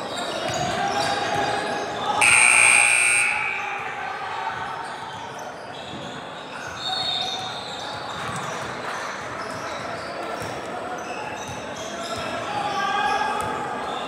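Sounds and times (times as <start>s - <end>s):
voices echoing in gym: 0.0s - 14.0s
scoreboard buzzer: 2.2s - 3.8s.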